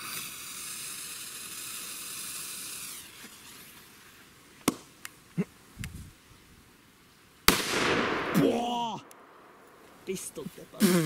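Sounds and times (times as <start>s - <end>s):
firecracker fuse hissing: 0.0s - 4.5s.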